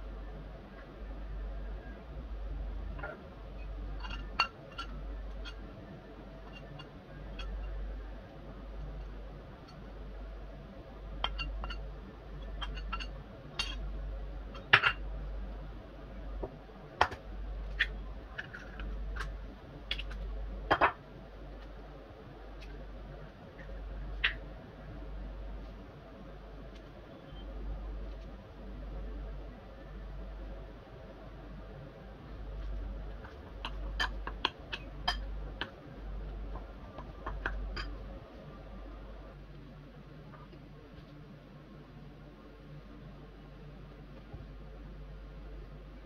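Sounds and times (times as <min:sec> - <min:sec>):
low hum: 0:00.0 - 0:46.0
eggs cracking against glass bowls: 0:11.2 - 0:13.8, 0:33.2 - 0:35.8.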